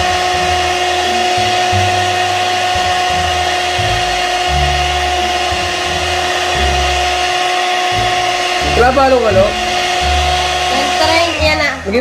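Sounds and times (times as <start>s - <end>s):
electric hand mixer whining: 0.0s - 12.0s.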